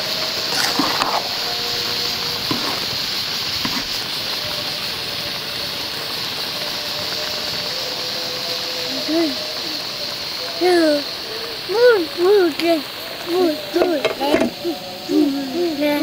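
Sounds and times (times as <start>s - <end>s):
steady hiss: 0.0s - 16.0s
metal spoon stirring rice in pot: 0.5s - 1.4s, 2.4s - 3.0s, 3.6s - 4.1s
spoon scraping a pot: 0.5s - 1.4s, 2.4s - 3.0s, 3.6s - 4.0s.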